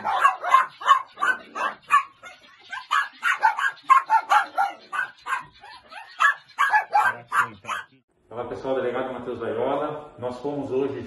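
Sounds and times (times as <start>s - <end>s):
small dogs barking: 0.0s - 8.0s.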